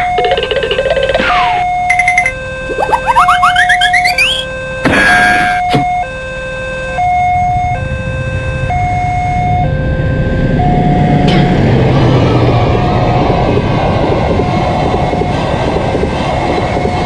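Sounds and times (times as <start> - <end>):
level-crossing alarm tones: 0.0 - 11.6
train rumble: 8.8 - 17.0.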